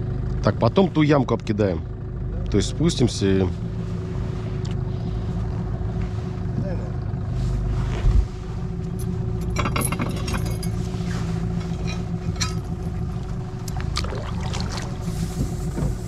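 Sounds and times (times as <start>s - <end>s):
outboard motor idling: 0.0s - 16.0s
metallic clinks on metal boat: 9.0s - 10.8s, 11.7s - 13.2s.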